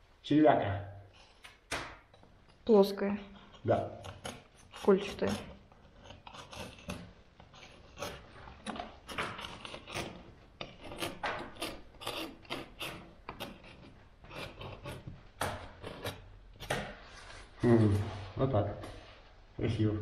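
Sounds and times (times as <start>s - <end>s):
knife scraping paint off plaster: 3.3s - 17.0s.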